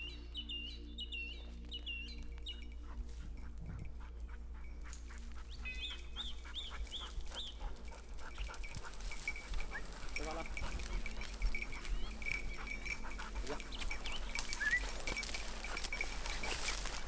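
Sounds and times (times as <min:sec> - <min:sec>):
rustles and clicks: 0:06.7 - 0:17.0.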